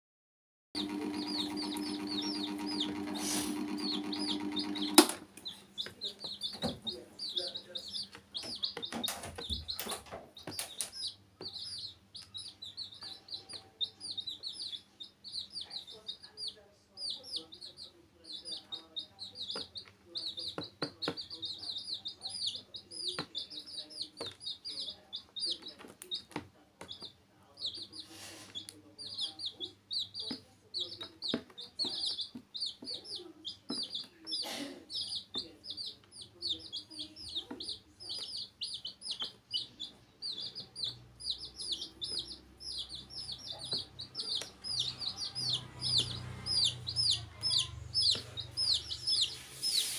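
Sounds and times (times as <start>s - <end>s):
mechanical hum: 0.8s - 8.8s
chicks peeping: 0.8s - 49.9s.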